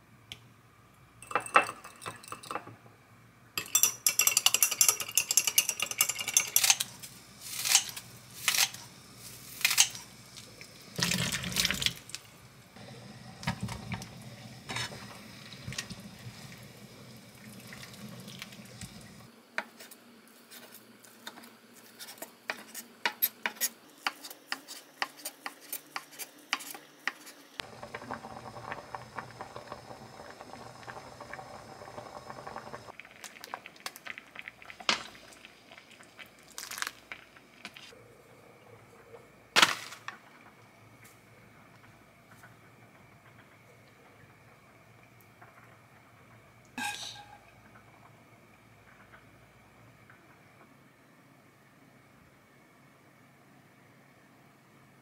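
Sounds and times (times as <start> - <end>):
utensils clinking on dishes: 3.6 - 8.8
soup bubbling at a boil: 8.0 - 19.3, 27.6 - 52.0
liquid pouring: 10.3 - 12.2, 12.8 - 19.3, 27.6 - 37.7.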